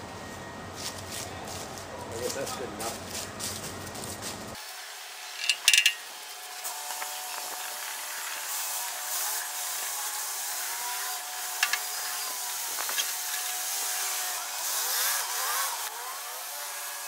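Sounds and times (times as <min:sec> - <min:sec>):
sharp metallic clinks: 0:05.4 - 0:06.1.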